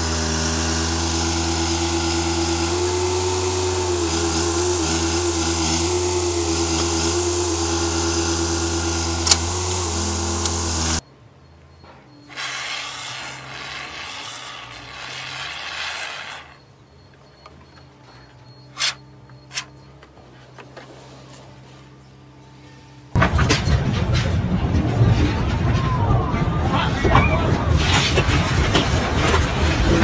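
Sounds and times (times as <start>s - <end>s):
excavator engine running: 0.0s - 25.6s
spray hissing from tube: 12.3s - 16.6s.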